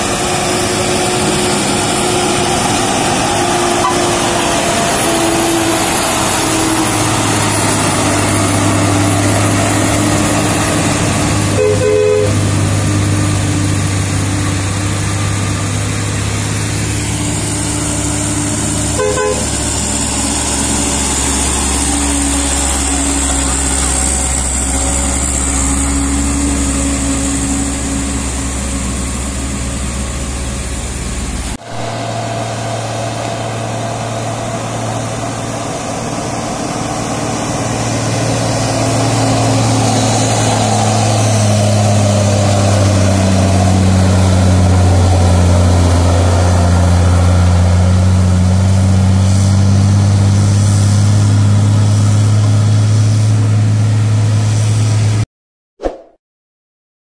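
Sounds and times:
diesel truck engines climbing: 0.0 - 55.2.

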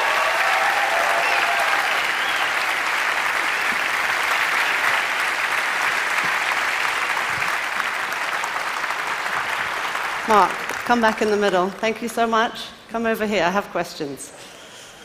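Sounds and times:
audience applauding: 0.0 - 11.9.

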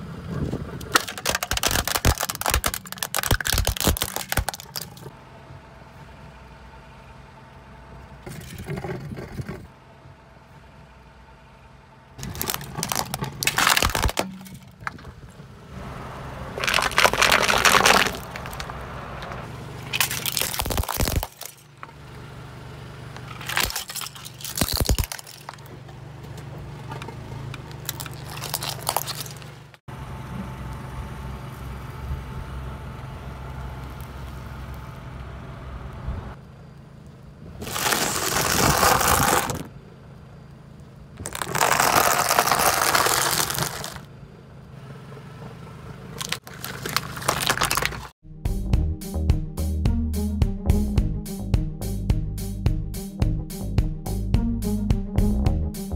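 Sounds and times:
slow car hum: 0.0 - 55.9
tyre crushing objects cracking: 0.8 - 5.1, 12.2 - 15.3, 16.5 - 21.9, 23.2 - 25.8, 26.9 - 29.8, 37.6 - 39.7, 41.2 - 44.0, 46.2 - 48.2.

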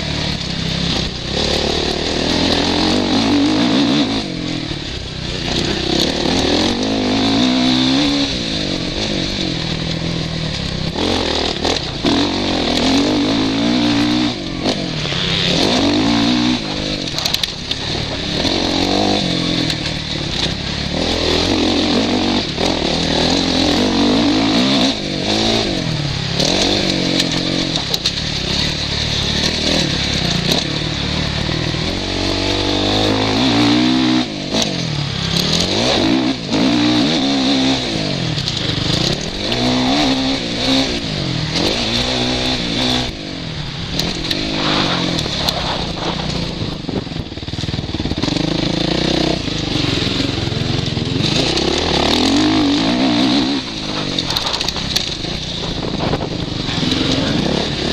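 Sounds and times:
motocross engine revving: 0.0 - 57.9
wind rushing over microphone: 42.1 - 48.4, 51.3 - 57.9.

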